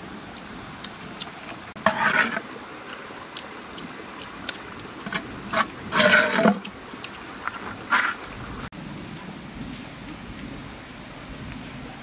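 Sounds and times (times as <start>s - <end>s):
scoop scraping rice from pot: 1.8s - 2.4s.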